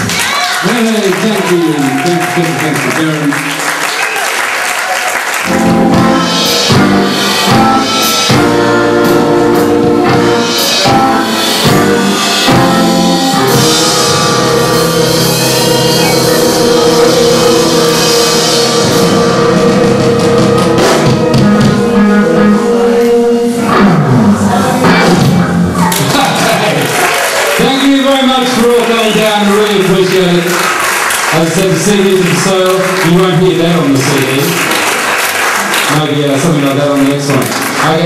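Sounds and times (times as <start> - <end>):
electric guitar: 5.4 - 27.6
drum kit: 5.4 - 38.0.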